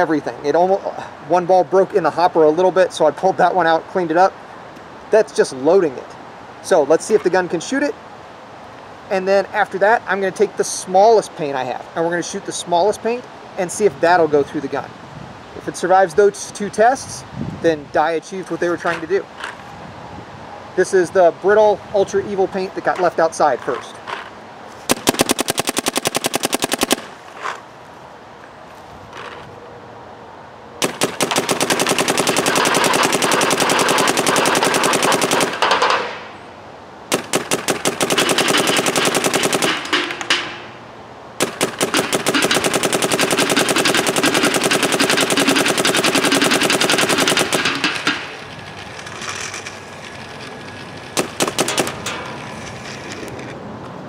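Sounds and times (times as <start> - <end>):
paintball gun rapid fire: 24.9 - 27.2, 30.8 - 36.2, 37.1 - 40.6, 41.4 - 49.4, 51.1 - 52.2.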